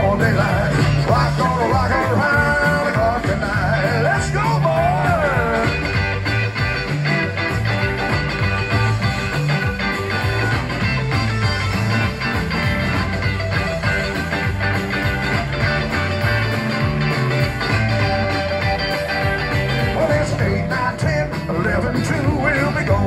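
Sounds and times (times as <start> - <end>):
bass line: 0.0 - 23.0
electric guitar: 0.0 - 23.0
rock band playing: 0.0 - 23.0.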